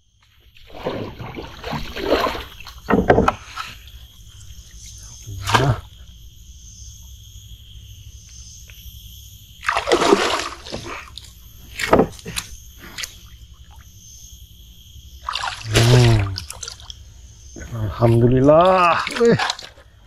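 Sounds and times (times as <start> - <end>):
fish splashing in water: 0.6 - 3.8, 9.6 - 12.4, 15.2 - 17.0, 18.6 - 19.8.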